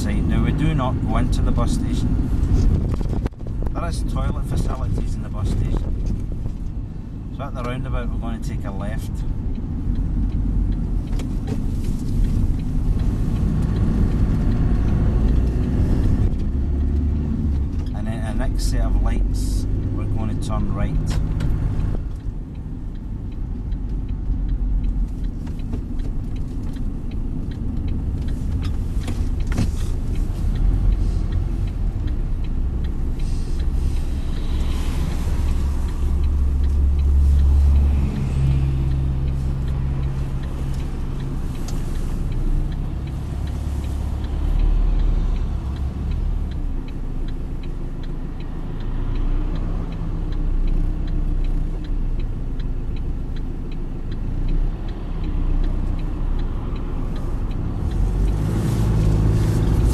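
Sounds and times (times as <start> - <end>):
bus engine and tyre drone: 0.0 - 59.9.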